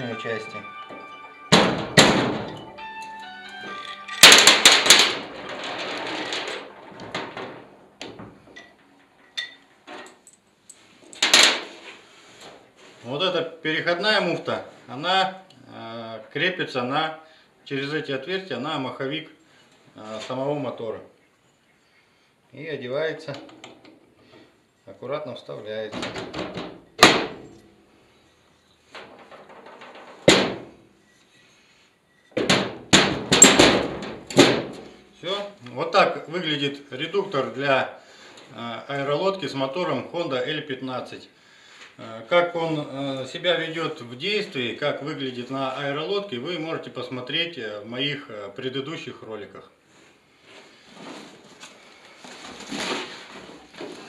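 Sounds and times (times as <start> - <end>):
metal parts clinking and knocking: 3.6 - 11.6, 32.3 - 34.9.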